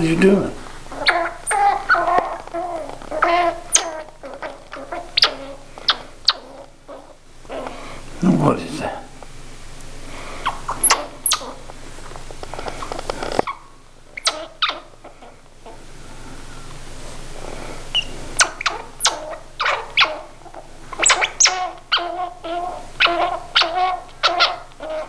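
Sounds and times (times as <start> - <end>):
baby squirrel squeaking: 0.9 - 7.8, 10.4 - 11.7, 12.8 - 15.8, 17.9 - 25.0.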